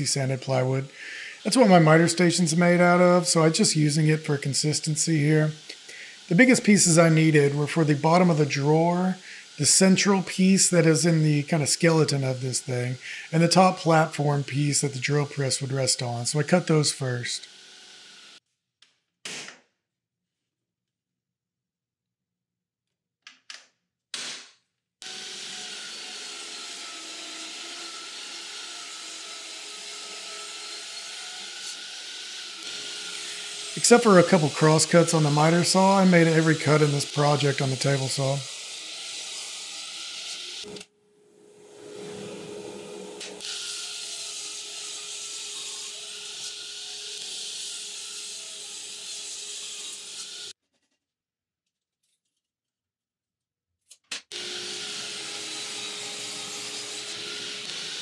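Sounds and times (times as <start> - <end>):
table saw cutting plywood: 0.0 - 18.4, 25.0 - 40.9, 41.6 - 50.6, 54.3 - 58.0.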